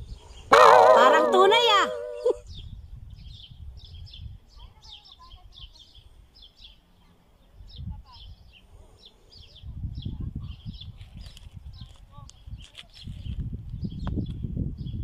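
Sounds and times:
small birds chirping: 0.0 - 15.0
low rumble on microphone: 7.6 - 15.0.

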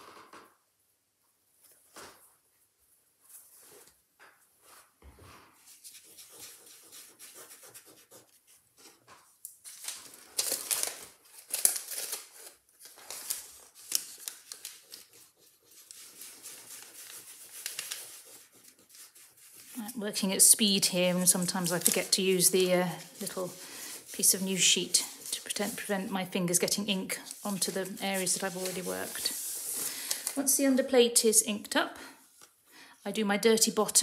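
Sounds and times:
fabric pad rubbing on board: 27.3 - 29.8.

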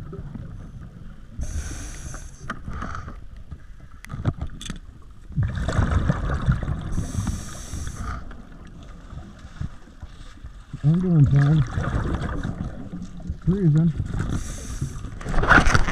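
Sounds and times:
regulator hissing inhale: 1.4 - 3.2, 6.9 - 8.2, 14.3 - 15.1.

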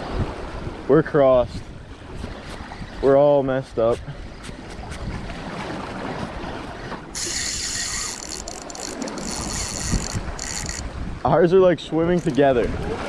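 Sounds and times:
wind: 0.0 - 13.0
water lapping on rocks: 2.0 - 11.2
fishing reel drag buzzing: 7.1 - 11.0, 12.2 - 12.4.

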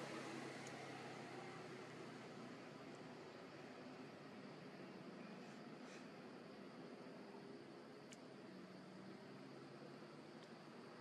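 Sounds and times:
faint background hiss: 0.0 - 11.0.

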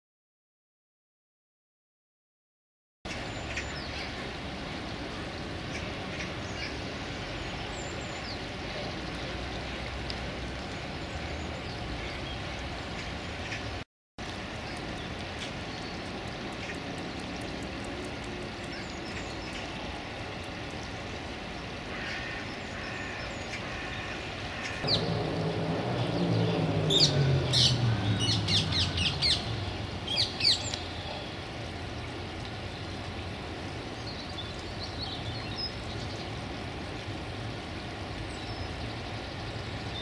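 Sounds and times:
wild birds calling: 21.9 - 32.2
low rumble: 24.8 - 30.2.

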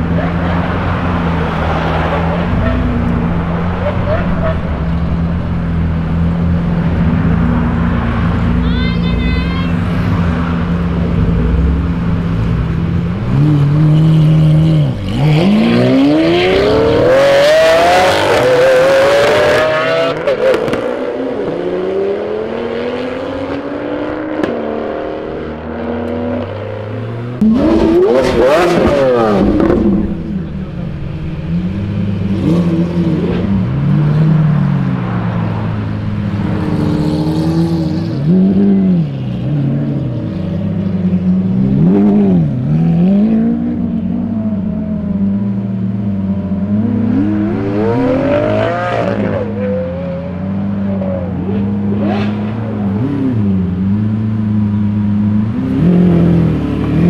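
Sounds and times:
cars accelerating hard: 9.8 - 57.0
car engines idling with revs: 26.5 - 49.6.

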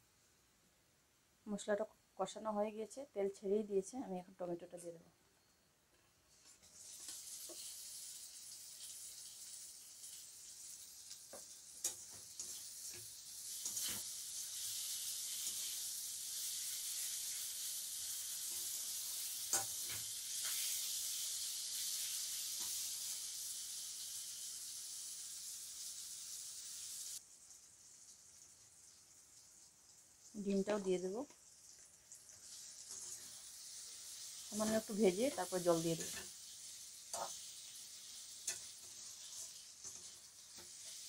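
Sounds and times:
tomatoes sizzling in hot oil: 6.2 - 41.0
spatula scraping metal pan: 37.1 - 37.5, 38.4 - 41.0.

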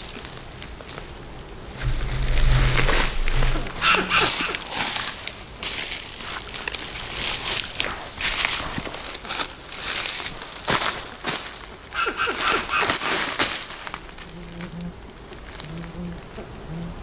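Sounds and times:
dry leaves crunching and rustling: 0.0 - 1.3, 4.6 - 16.4
low rumble: 1.8 - 5.1.

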